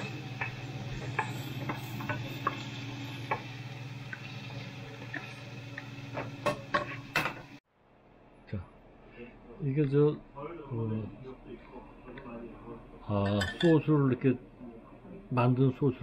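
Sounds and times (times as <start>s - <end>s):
fish sizzling in frying pan: 0.0s - 7.6s.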